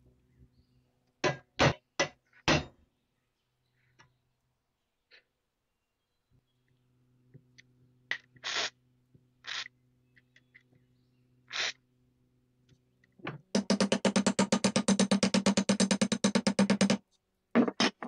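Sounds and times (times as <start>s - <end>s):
faint steady hum: 2.5s - 18.0s
short hissing noises: 8.4s - 8.7s.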